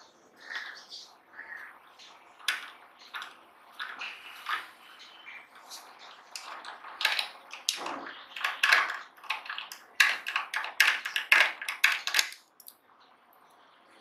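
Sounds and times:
screwdriver clicking on screws: 8.4 - 12.7.

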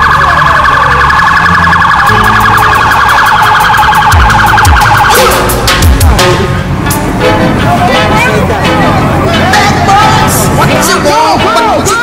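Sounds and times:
police siren yelp: 0.0 - 5.6.

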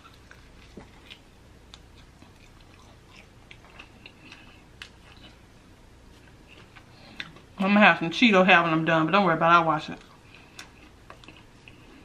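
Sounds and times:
crunchy chewing: 0.0 - 7.6, 10.0 - 12.0.

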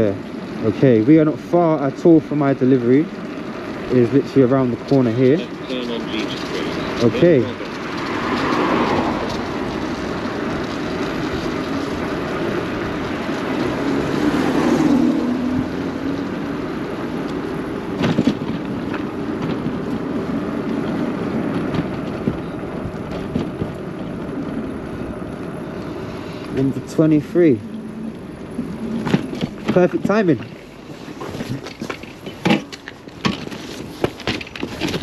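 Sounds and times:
wind and road noise: 0.0 - 35.0.

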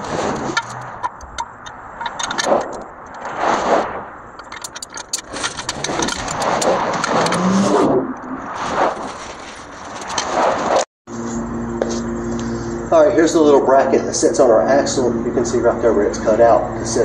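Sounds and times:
metal clinks and rattles: 0.0 - 3.3, 4.3 - 7.5
metal scraping: 0.0 - 13.6.

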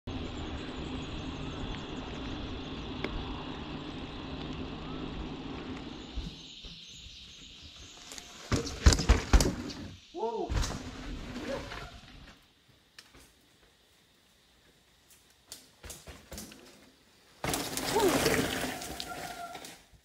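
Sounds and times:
low motor hum: 0.0 - 8.0.

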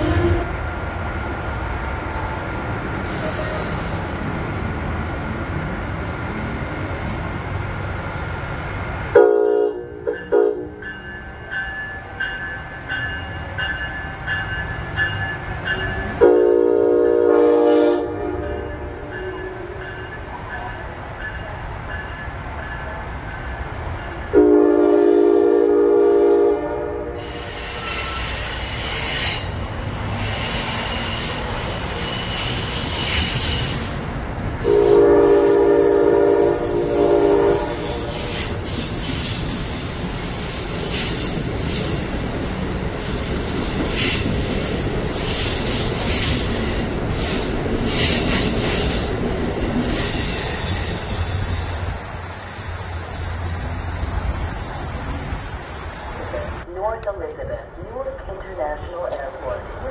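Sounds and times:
train horn blasts: 0.0 - 0.6, 9.1 - 10.9, 16.2 - 19.8, 24.3 - 28.4, 34.6 - 38.5
electric train running by: 0.0 - 59.9.

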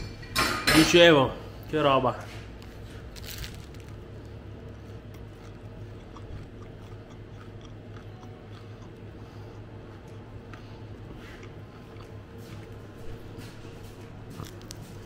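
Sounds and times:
low hum: 2.3 - 15.0
sandwich crunching bite: 2.6 - 12.8, 14.2 - 15.0
chewing with mouth clicks: 2.7 - 15.0.

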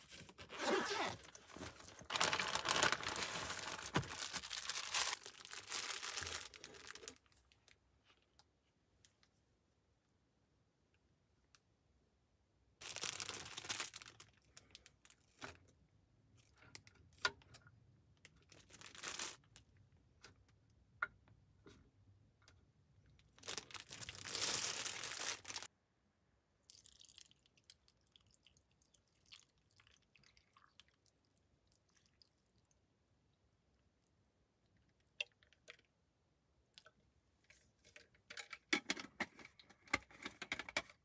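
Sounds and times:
rustling and crinkling: 0.0 - 8.4, 23.2 - 25.7.

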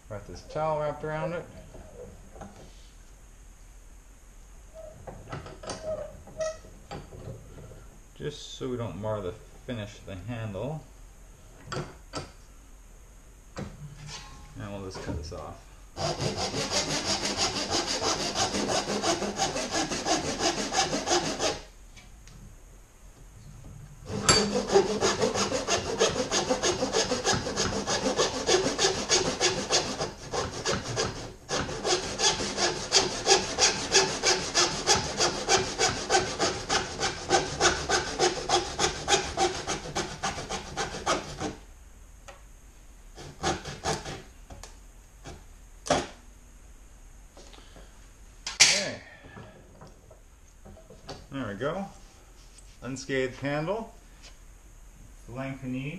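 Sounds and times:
hand saw cutting wood: 16.0 - 21.7, 24.1 - 41.6, 43.2 - 44.2.

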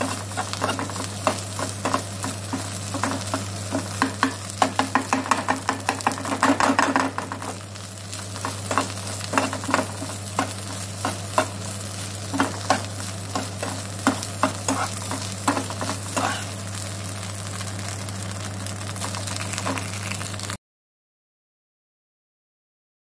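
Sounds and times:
spatula scraping a frying pan: 0.0 - 6.1, 8.4 - 16.6
sizzle of frying: 0.0 - 20.6.

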